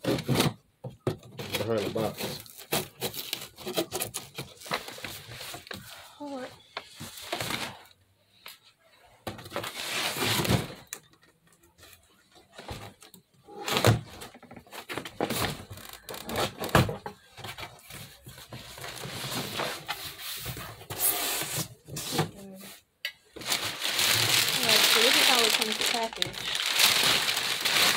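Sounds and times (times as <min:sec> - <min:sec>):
cardboard scraping and tearing: 0:01.4 - 0:05.8, 0:09.5 - 0:10.9, 0:23.4 - 0:27.9.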